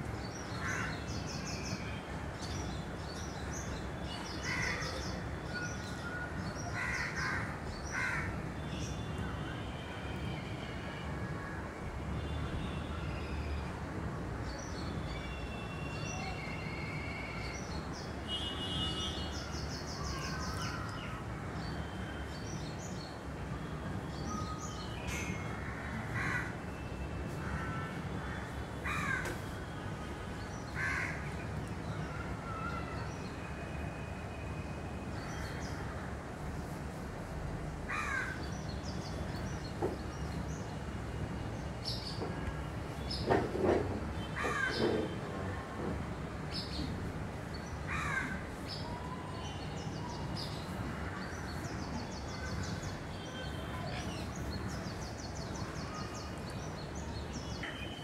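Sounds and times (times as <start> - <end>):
crows cawing: 37.9 - 38.4, 47.9 - 48.4.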